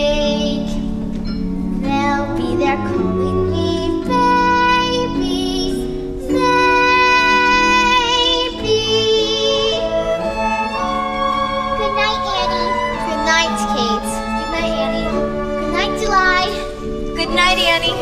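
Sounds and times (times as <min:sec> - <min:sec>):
girl singing a ballad: 0:00.0 - 0:00.9, 0:01.8 - 0:11.0
instrumental accompaniment: 0:00.0 - 0:18.0.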